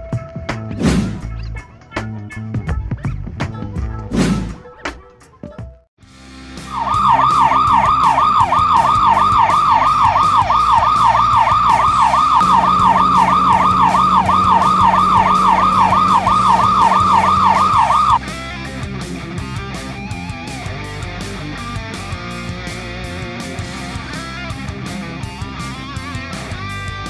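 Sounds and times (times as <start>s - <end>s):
background music: 0.0s - 27.0s
electronic siren sweeping: 6.6s - 18.2s.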